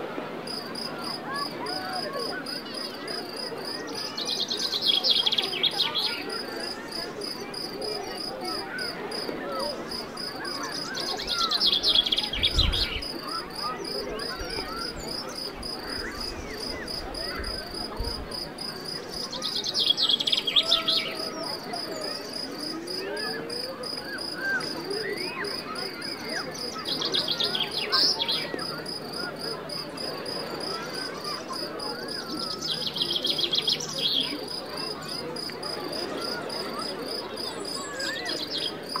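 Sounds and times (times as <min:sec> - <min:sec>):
crickets chirping: 0:06.6 - 0:25.3.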